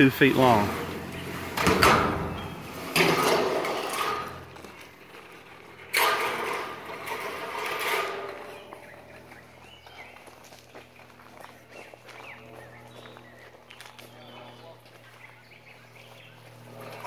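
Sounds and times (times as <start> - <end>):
corrugated metal panel rattling: 0.2 - 8.8.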